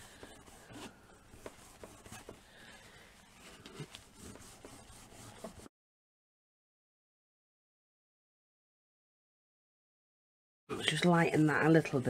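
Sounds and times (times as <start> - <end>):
tissue rubbing on clay: 0.0 - 5.7.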